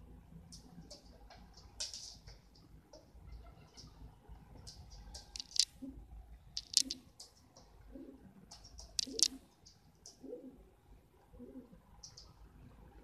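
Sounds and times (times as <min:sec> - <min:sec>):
pigeon pecking on wooden floor: 0:00.5 - 0:03.4, 0:04.6 - 0:05.8, 0:06.6 - 0:07.8, 0:08.5 - 0:10.2
pigeon cooing softly: 0:07.8 - 0:09.4, 0:10.1 - 0:12.4.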